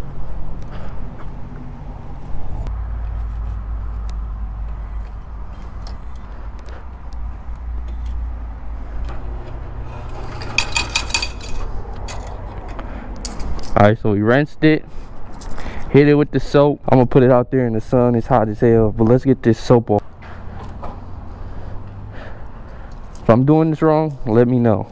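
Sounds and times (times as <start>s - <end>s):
small metal pieces jingling: 10.4s - 12.3s.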